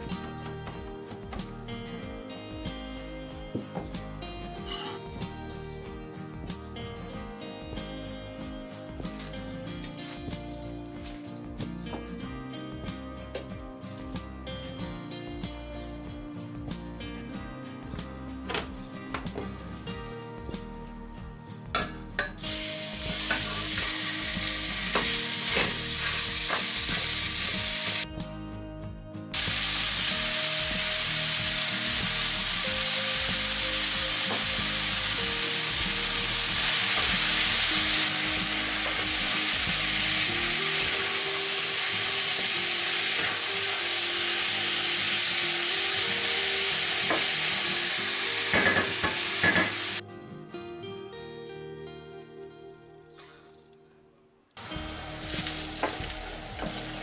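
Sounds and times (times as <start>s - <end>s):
meat sizzling in a saucepan: 22.4s - 28.0s, 29.4s - 50.0s, 54.6s - 57.0s.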